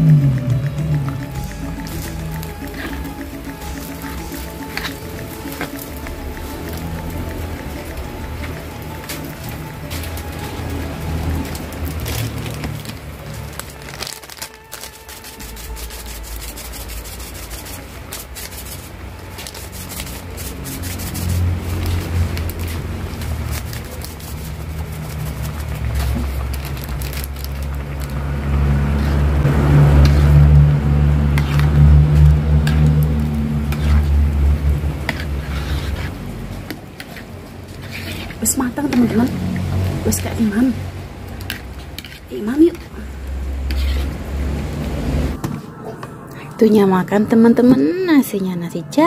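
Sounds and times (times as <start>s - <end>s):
low engine-like hum: 0.0s - 14.0s, 18.9s - 49.0s
low rumble: 19.0s - 36.7s.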